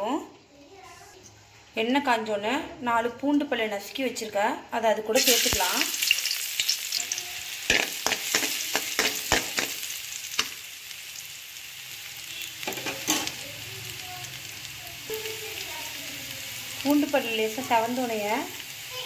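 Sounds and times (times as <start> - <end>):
garlic sizzling in oil: 5.1 - 19.0
metal spatula knocking a pan: 7.7 - 9.8, 12.7 - 13.4.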